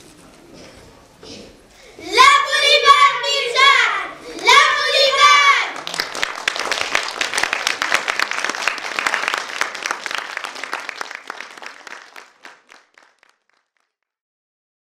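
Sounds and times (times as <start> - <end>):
audience applauding: 5.7 - 13.9.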